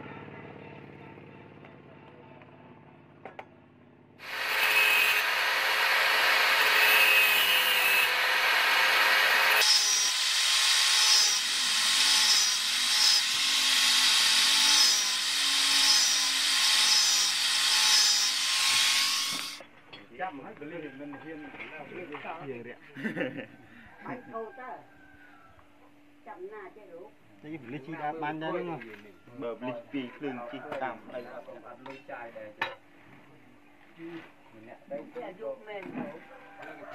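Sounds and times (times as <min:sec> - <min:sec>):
angle grinder cutting steel: 0:04.2 - 0:19.6.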